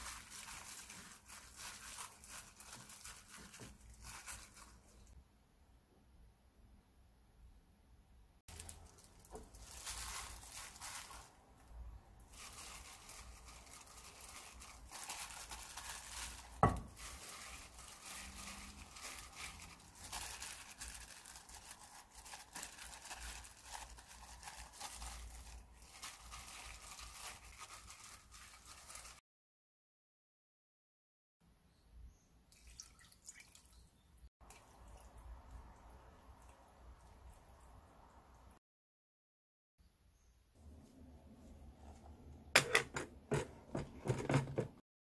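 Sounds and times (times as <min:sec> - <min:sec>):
dried greens rustling: 0:00.0 - 0:05.2, 0:08.5 - 0:29.2
plastic glove crinkling: 0:00.0 - 0:05.2, 0:08.5 - 0:29.2.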